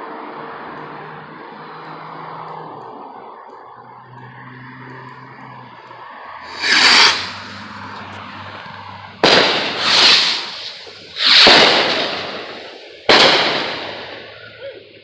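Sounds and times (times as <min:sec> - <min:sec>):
fireworks bangs: 0:06.4 - 0:08.2, 0:09.2 - 0:14.6
fireworks rushes: 0:06.4 - 0:08.3, 0:09.1 - 0:14.6.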